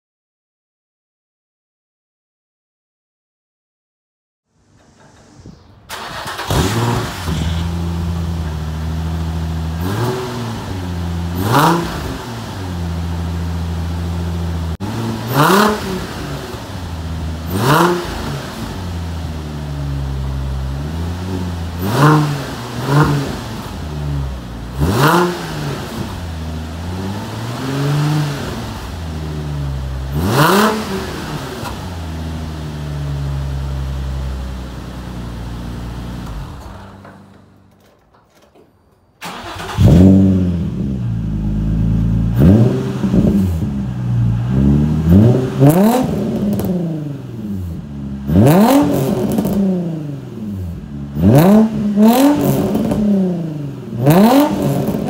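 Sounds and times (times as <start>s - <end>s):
engine throttle blips: 4.5s - 38.6s, 39.2s - 55.0s.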